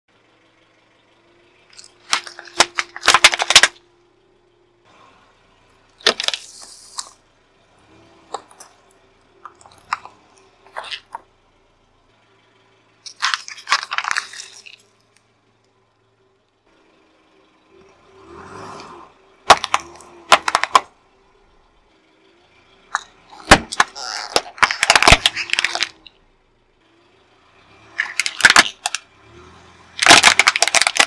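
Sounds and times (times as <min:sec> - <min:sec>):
tyre crushing objects: 0:13.1 - 0:14.8, 0:19.5 - 0:20.9, 0:23.4 - 0:26.0.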